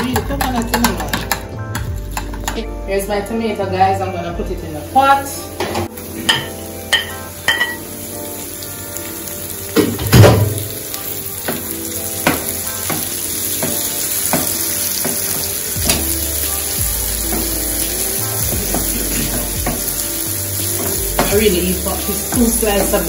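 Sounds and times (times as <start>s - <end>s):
vegetables sizzling in hot oil: 4.7s - 23.0s.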